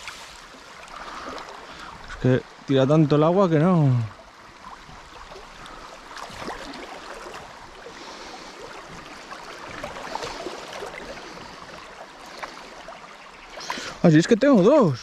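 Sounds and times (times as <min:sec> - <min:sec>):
river current over gravel: 0:00.0 - 0:15.0.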